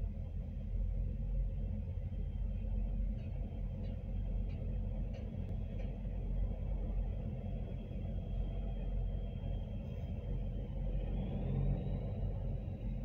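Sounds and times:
diesel truck engines idling: 0.0 - 13.0.

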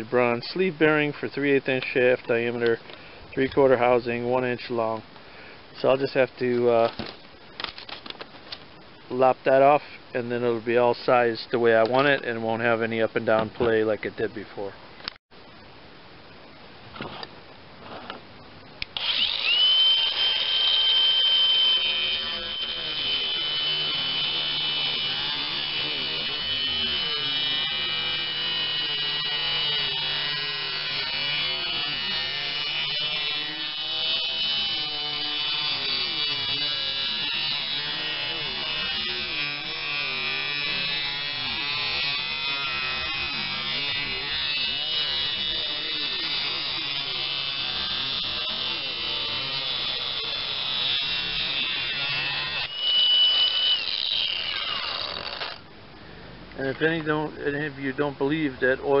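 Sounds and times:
angle grinder grinding metal: 18.9 - 55.6.

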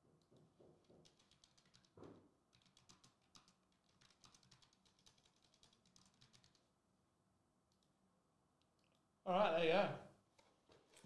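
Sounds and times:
typing on keyboard: 0.2 - 6.7, 7.7 - 7.9.

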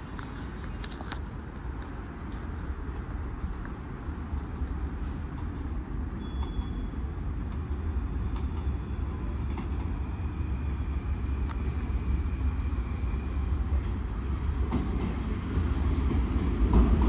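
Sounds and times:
metro train rumbling: 0.0 - 17.0.

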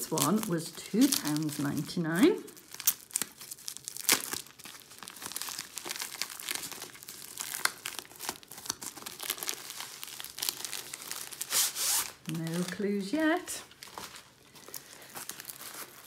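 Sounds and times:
padded mailer crinkling: 0.0 - 16.0
paper-wrapped contents sliding out: 3.8 - 12.8.

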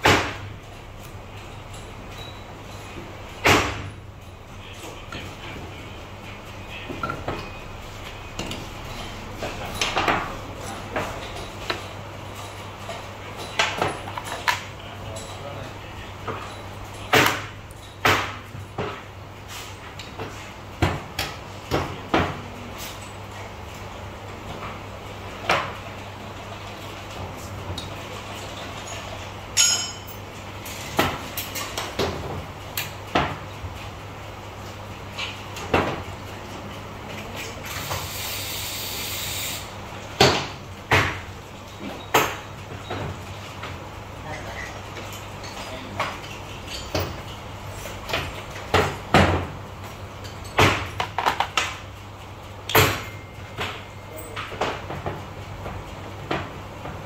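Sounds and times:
tools and engine parts clanking: 0.5 - 4.8, 8.2 - 15.6, 16.2 - 19.7, 27.8 - 32.9, 44.6 - 48.8
sharp metallic clank: 29.6 - 30.2.

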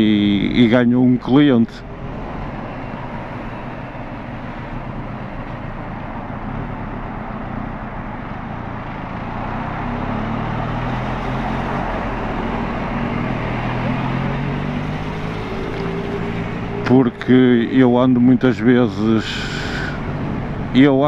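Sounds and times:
wind and tyre noise: 0.0 - 21.0.

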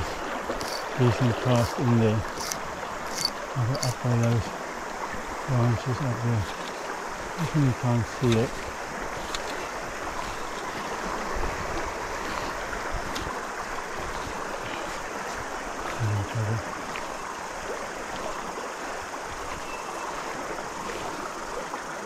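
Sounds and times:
river flowing: 0.0 - 22.0
man's voice murmuring: 1.0 - 2.2, 5.5 - 6.5, 7.4 - 8.5, 15.9 - 16.6.

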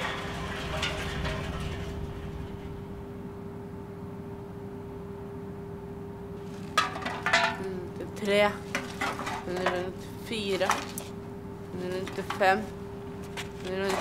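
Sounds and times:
steady hum: 0.0 - 14.0
aluminium cans clinking: 6.7 - 7.8, 8.7 - 11.1, 12.0 - 12.7.

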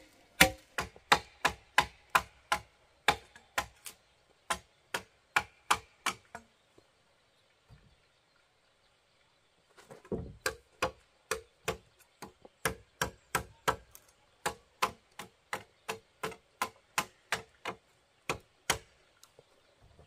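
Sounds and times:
machete chopping wood: 0.0 - 6.4, 10.1 - 18.9.

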